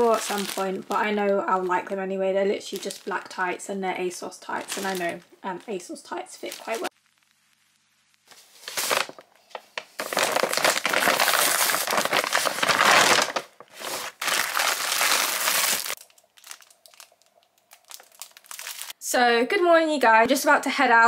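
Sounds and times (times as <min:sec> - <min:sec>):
packaging crinkling and rustling: 0:00.0 - 0:02.0, 0:02.6 - 0:03.5, 0:04.4 - 0:06.9, 0:08.2 - 0:19.0.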